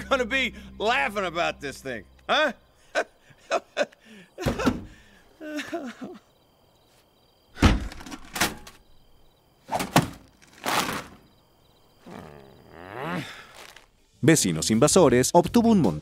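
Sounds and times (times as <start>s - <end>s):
effortful grunts: 12.0s - 13.9s.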